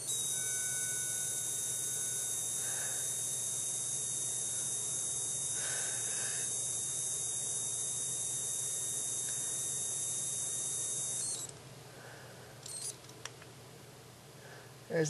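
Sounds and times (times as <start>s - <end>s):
high-pitched electronic whine: 0.0s - 11.5s.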